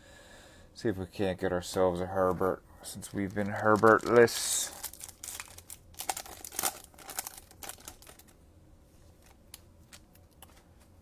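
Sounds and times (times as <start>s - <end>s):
wrapper crinkling: 2.9s - 8.4s.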